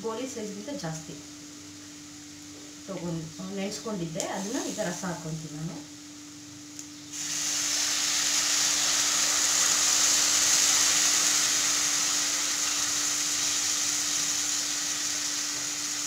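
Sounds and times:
liquid sizzling in hot oil: 0.1 - 5.8, 6.9 - 16.0.

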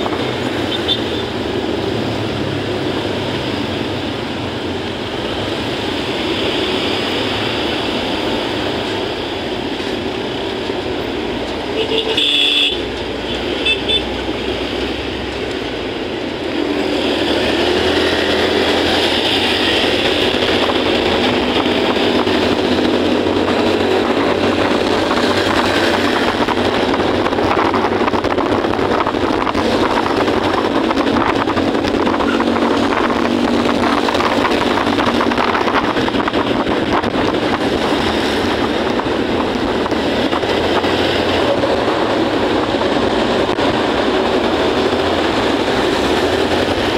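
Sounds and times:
road and wind noise: 0.0 - 46.9.

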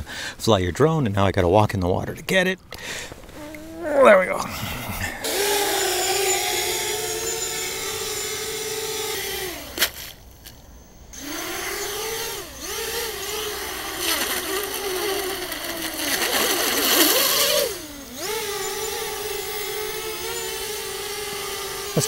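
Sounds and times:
drone motors whining: 3.1 - 22.0.

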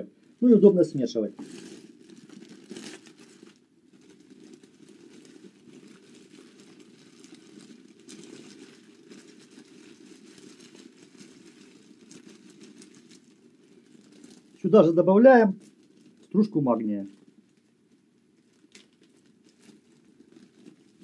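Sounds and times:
plastic sleeve crinkling: 0.0 - 21.0.

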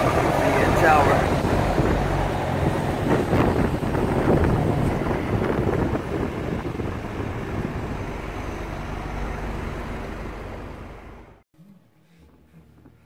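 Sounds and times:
wind rushing over microphone: 0.0 - 10.6
car road noise: 0.0 - 11.4.

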